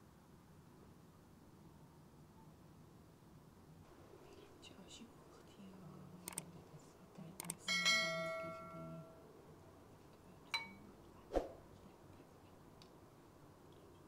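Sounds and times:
metal ladle clinking on bowls: 0:07.7 - 0:09.1, 0:10.5 - 0:10.8.

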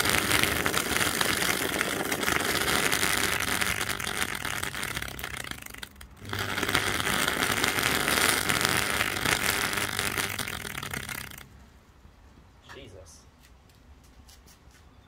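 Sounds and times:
blender motor crackling whir: 0:00.0 - 0:11.5.

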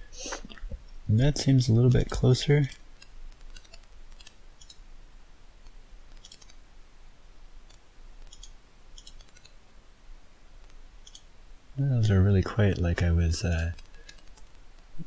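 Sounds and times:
computer mouse clicks: 0:02.1 - 0:04.8, 0:05.6 - 0:06.6, 0:07.7 - 0:09.6, 0:10.6 - 0:11.3, 0:13.5 - 0:14.6.

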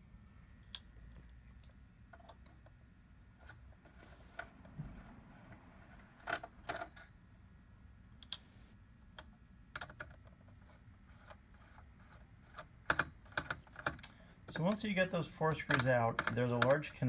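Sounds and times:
screwdriver and screws ticking on metal: 0:15.5 - 0:17.0.

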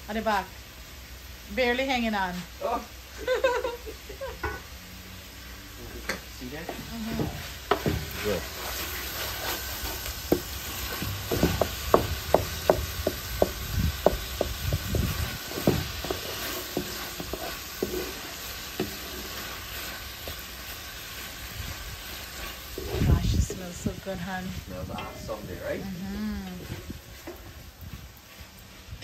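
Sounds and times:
food sizzling in a pot: 0:00.0 - 0:29.0
spoon scraping a pot: 0:15.0 - 0:19.6.

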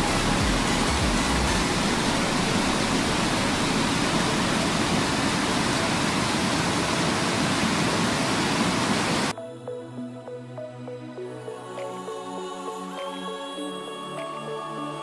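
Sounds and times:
fast-flowing mountain water rushing: 0:00.0 - 0:09.3.

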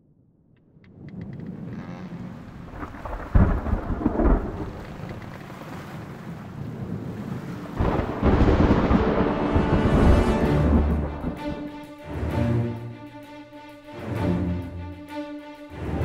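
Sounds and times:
steady rain: 0:01.4 - 0:12.7
thunder rumbling: 0:02.2 - 0:05.2, 0:06.4 - 0:11.7.

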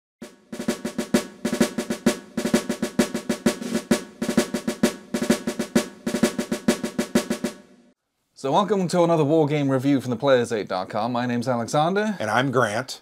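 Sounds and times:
snare drum rolls: 0:00.2 - 0:07.8.

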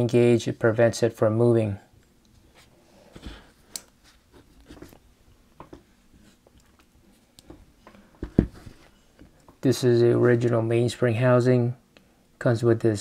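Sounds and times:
soft thump: 0:08.2 - 0:08.6.

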